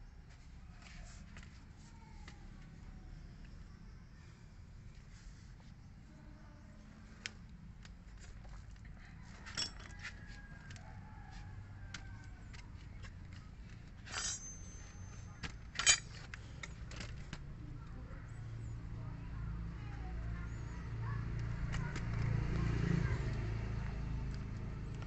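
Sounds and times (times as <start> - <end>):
metal scrapes: 14.0 - 16.2
metallic clinks of hand tools: 14.1 - 16.8.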